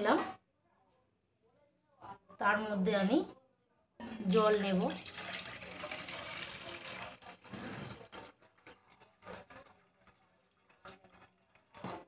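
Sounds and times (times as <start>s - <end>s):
water dripping: 4.2s - 11.9s
water pouring into a metal pot: 4.2s - 12.0s.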